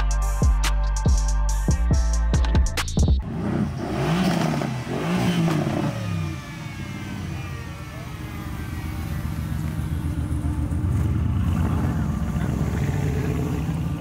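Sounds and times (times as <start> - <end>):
exhaust rumble: 0.0 - 14.0
car engine revving: 3.1 - 14.0.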